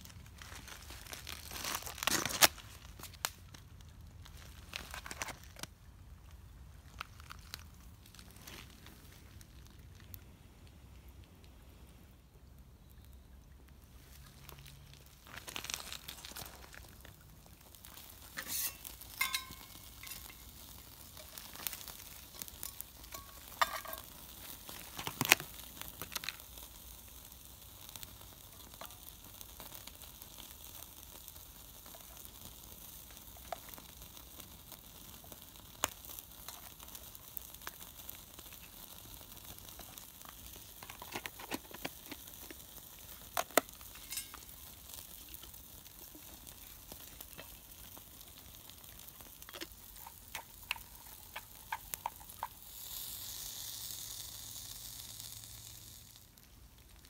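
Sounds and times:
wood fire crackling: 0:00.0 - 0:57.0
meat sizzling on grill: 0:14.1 - 0:57.0.

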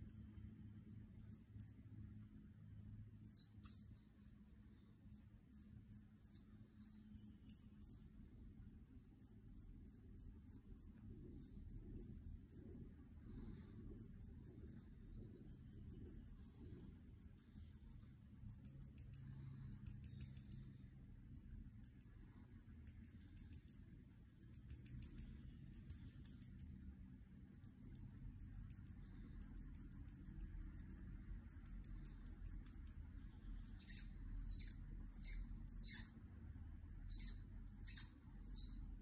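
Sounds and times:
low steady hum: 0:00.0 - 0:39.0
marker squeaking on paper: 0:02.8 - 0:04.0, 0:33.6 - 0:36.2, 0:36.9 - 0:38.8.

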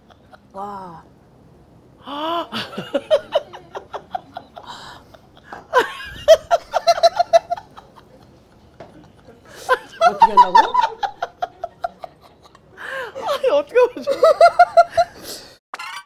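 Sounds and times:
women laughing heartily: 0:02.5 - 0:15.4.

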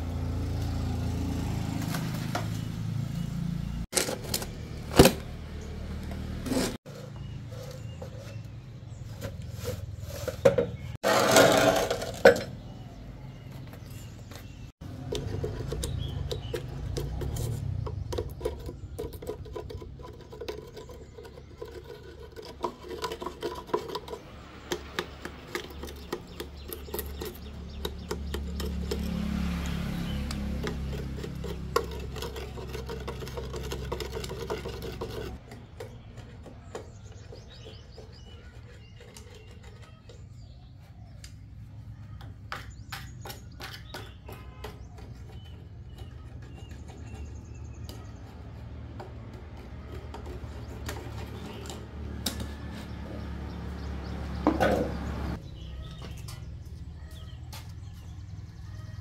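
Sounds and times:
metal scraper chipping concrete: 0:10.8 - 0:12.8, 0:14.8 - 0:40.4, 0:42.6 - 0:52.0.

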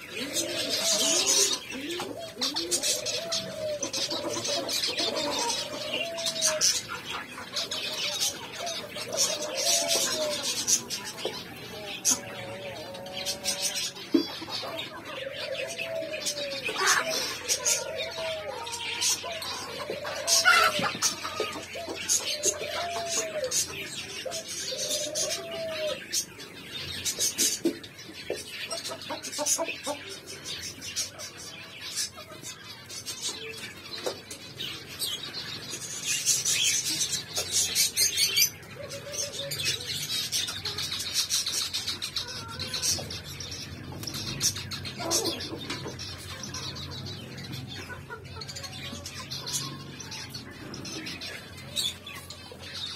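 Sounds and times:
low drawn-out cooing call: 0:00.0 - 0:26.4, 0:37.6 - 0:40.8, 0:42.2 - 0:52.3
zebra finches chirping: 0:00.0 - 0:52.9.

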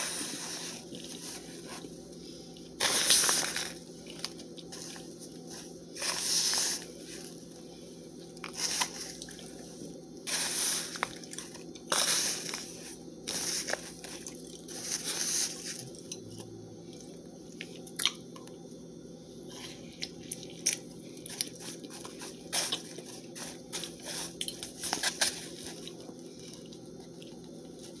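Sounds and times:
spoon crunching cornstarch: 0:02.8 - 0:07.4, 0:20.3 - 0:26.0.

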